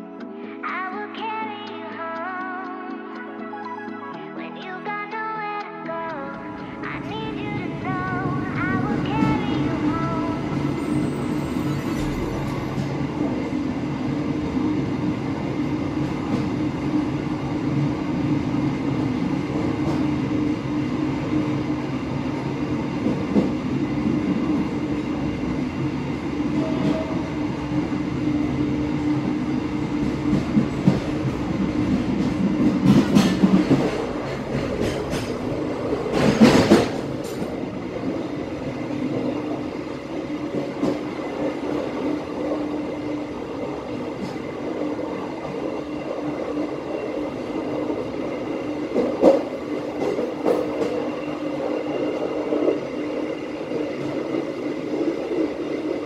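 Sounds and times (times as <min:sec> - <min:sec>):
train clatter: 0:06.8 - 0:14.6, 0:19.0 - 0:20.8, 0:22.4 - 0:25.7, 0:26.5 - 0:27.8, 0:29.2 - 0:53.0
train wheels rumbling on track: 0:06.9 - 0:56.0.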